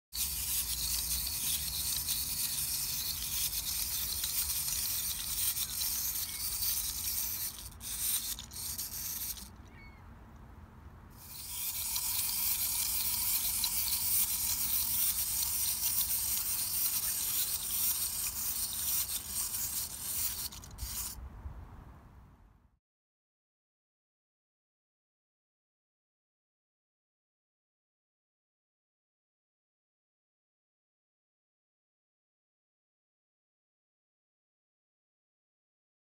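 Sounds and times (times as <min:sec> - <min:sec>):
wind-up toy motor whirring: 0:00.2 - 0:09.9, 0:11.2 - 0:21.2.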